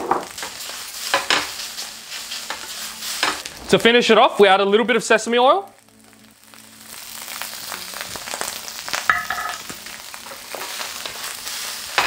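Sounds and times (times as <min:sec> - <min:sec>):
rice sizzling in a pan: 0:00.0 - 0:12.0.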